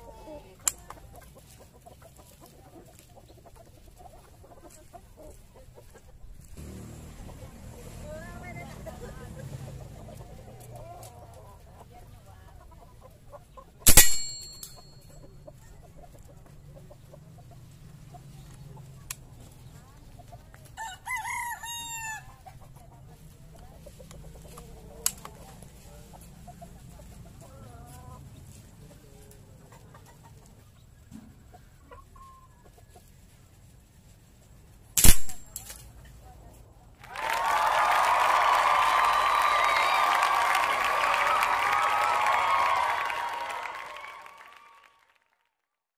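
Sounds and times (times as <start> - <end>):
airgun shots: 13.9 - 14.6, 35.0 - 35.6
rooster crowing: 20.8 - 22.3, 37.2 - 44.5.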